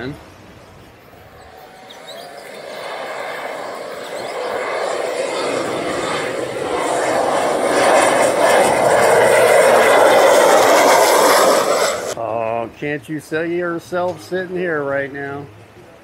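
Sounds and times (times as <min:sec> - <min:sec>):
propeller plane flying overhead: 0:00.9 - 0:12.2.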